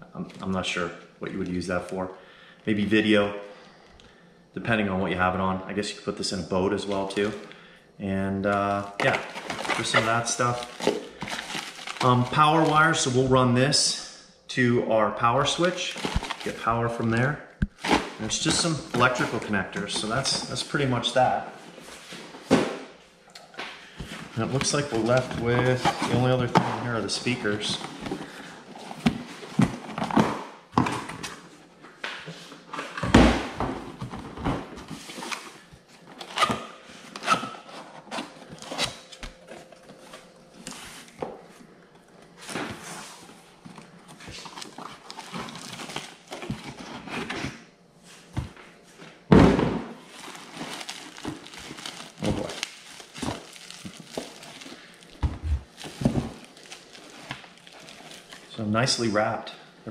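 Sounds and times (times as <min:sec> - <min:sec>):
wrapping rustling: 0:09.0 - 0:13.2, 0:15.6 - 0:16.7, 0:42.8 - 0:47.3, 0:50.0 - 0:58.6
cardboard knocks and thunks: 0:49.3 - 0:50.0.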